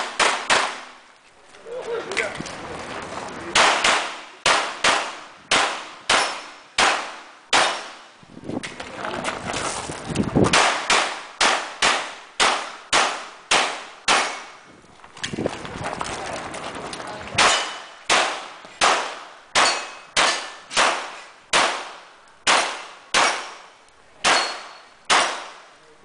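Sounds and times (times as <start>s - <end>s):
pistol shots with ringing echo: 0.0s - 0.9s, 3.5s - 8.0s, 10.5s - 14.5s, 17.4s - 25.7s.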